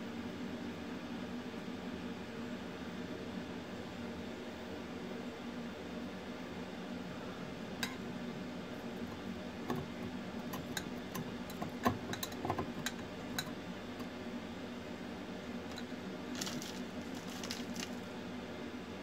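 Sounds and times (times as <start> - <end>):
steady low hum: 6.4 - 19.0.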